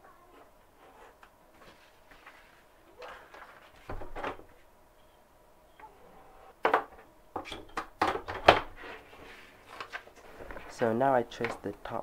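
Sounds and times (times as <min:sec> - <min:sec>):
paper shuffling: 0:01.6 - 0:03.9.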